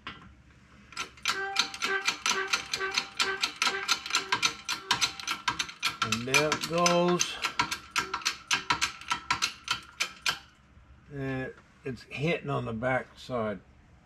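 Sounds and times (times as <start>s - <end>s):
rapid mechanical clicking: 1.0s - 10.6s.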